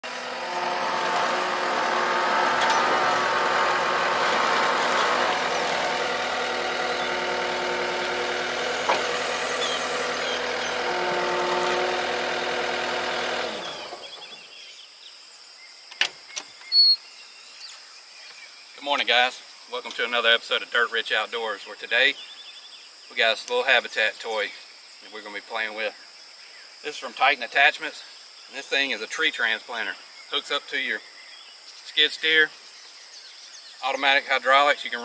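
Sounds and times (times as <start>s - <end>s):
diesel engine running: 0.0s - 14.4s.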